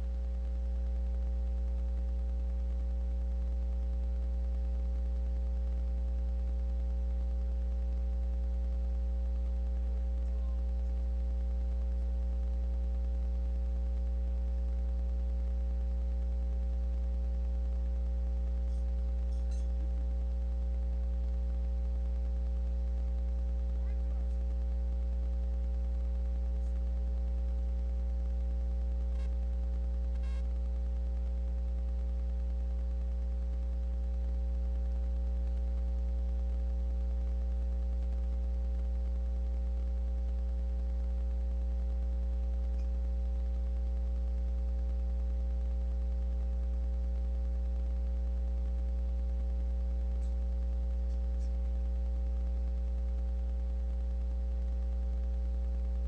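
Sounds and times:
faint steady tones: 0:00.0 - 0:56.0
faint ticks: 0:00.0 - 0:56.0
steady low hum: 0:00.0 - 0:56.0.

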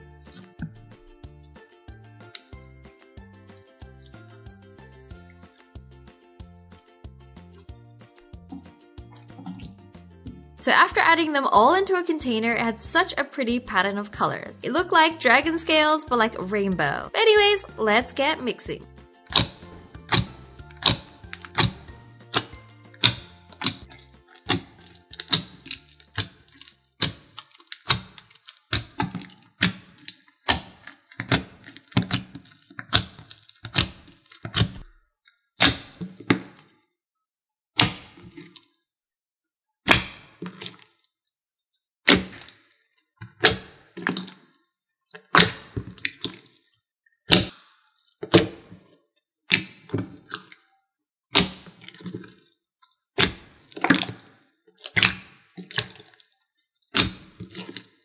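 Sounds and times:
soft background music: 0:00.0 - 0:29.8
slime squishing and popping: 0:08.5 - 0:09.8, 0:19.2 - 0:34.9, 0:35.6 - 0:36.6, 0:37.8 - 0:38.7, 0:39.8 - 0:41.0, 0:42.1 - 0:42.6, 0:43.3 - 0:44.5, 0:45.1 - 0:46.7, 0:47.3 - 0:48.7, 0:49.5 - 0:50.7, 0:51.3 - 0:56.3, 0:56.9 - 0:58.0.

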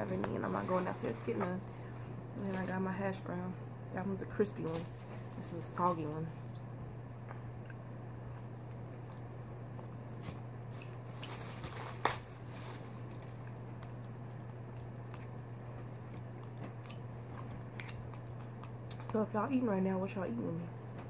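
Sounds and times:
steady low hum: 0:00.0 - 0:21.0
plastic wrapper crinkling: 0:04.4 - 0:06.3, 0:10.2 - 0:13.9
biting and chewing: 0:07.2 - 0:19.2.

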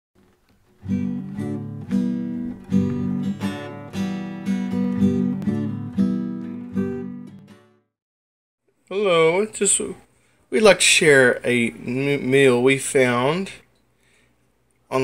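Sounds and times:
acoustic guitar strumming: 0:00.2 - 0:07.8.

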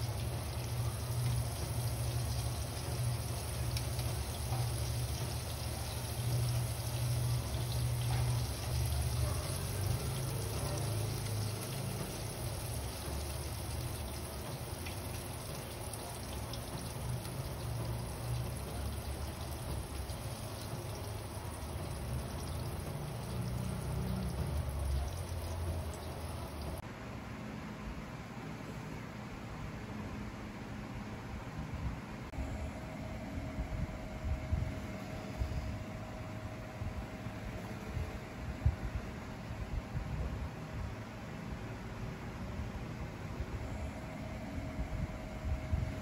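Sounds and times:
deep-frying sizzling and crackling: 0:00.0 - 0:26.8.

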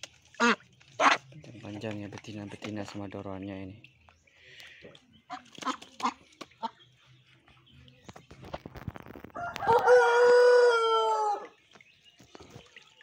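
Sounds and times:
rooster crowing: 0:09.4 - 0:11.5.

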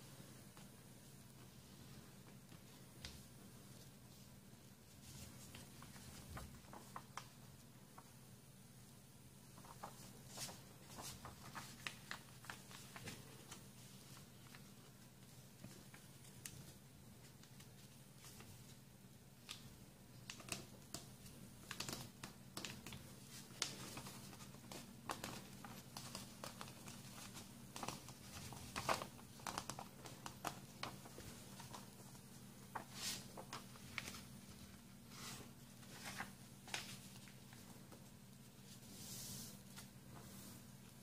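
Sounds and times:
paper rustling and crinkling: 0:04.9 - 0:08.1, 0:09.5 - 0:18.8, 0:20.2 - 0:38.0.

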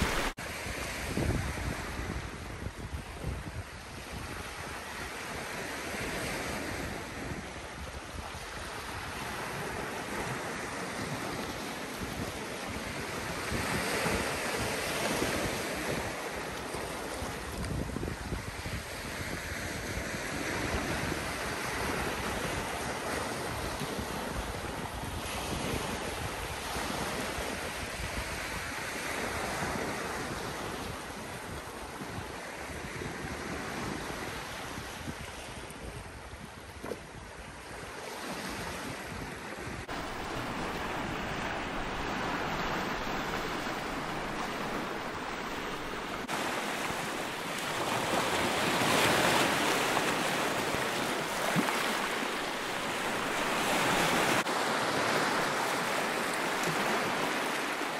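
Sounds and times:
waves washing onto pebbly shore: 0:00.0 - 0:02.5, 0:39.8 - 0:57.9
wind on microphone: 0:00.0 - 0:57.9.

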